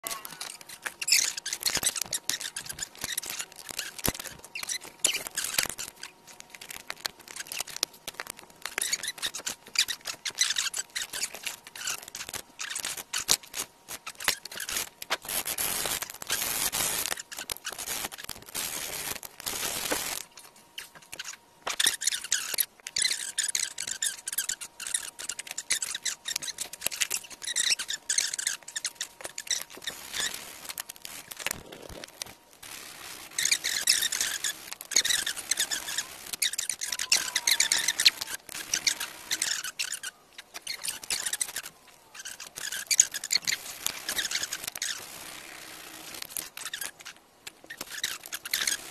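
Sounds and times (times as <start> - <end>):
high squeaky sped-up sounds: 0.0 - 6.1, 20.8 - 30.5, 32.6 - 45.1.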